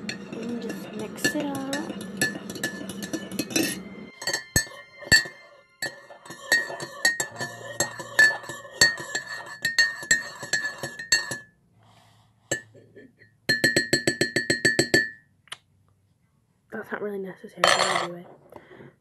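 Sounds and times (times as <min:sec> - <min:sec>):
spoon clinking in a mug: 0:00.0 - 0:11.5, 0:13.5 - 0:15.2.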